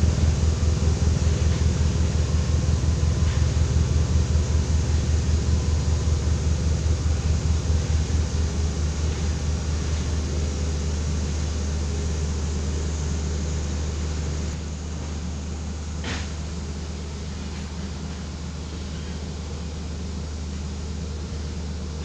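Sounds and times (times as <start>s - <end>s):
road roller engine hum: 0.0s - 22.0s.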